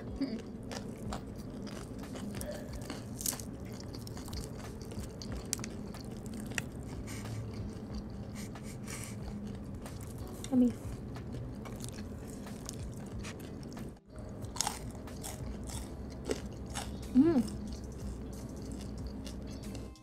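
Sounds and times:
crunchy bites and chewing: 0:00.4 - 0:08.4, 0:11.0 - 0:19.9.

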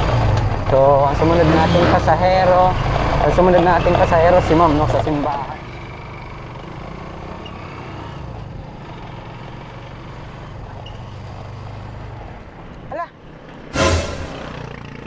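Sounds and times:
road noise: 0:00.0 - 0:15.0
sudden loud burst of noise: 0:13.8 - 0:14.8.

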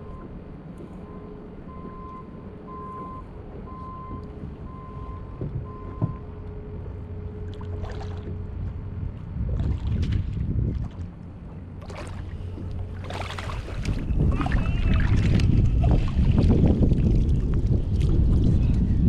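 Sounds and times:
fish splashing in water: 0:07.4 - 0:08.4, 0:09.5 - 0:11.2, 0:11.8 - 0:17.4
wind buffeting microphone: 0:07.7 - 0:19.0.

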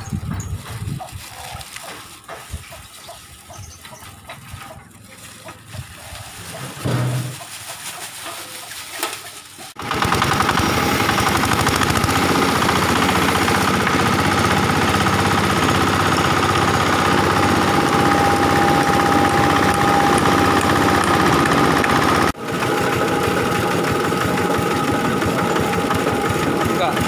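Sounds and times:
diesel engine clattering: 0:00.0 - 0:27.0
spinning mill whine: 0:09.8 - 0:27.0.

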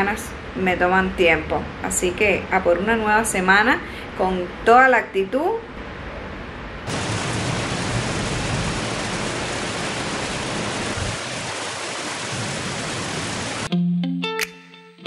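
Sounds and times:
steady rain: 0:06.8 - 0:13.7.

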